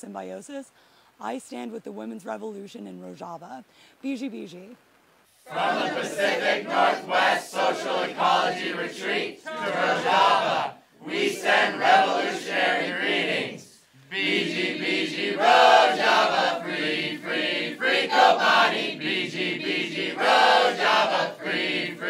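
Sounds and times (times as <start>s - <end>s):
crowd chanting in unison: 5.5s - 22.0s.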